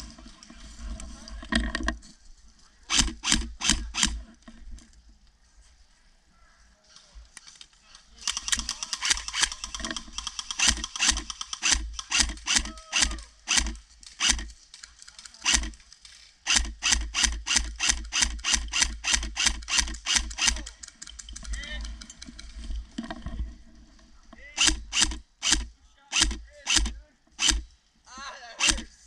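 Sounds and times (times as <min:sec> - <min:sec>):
airsoft rifle shots: 0:02.9 - 0:04.2, 0:08.2 - 0:14.5, 0:16.5 - 0:20.8, 0:24.6 - 0:27.7, 0:28.6 - 0:29.0.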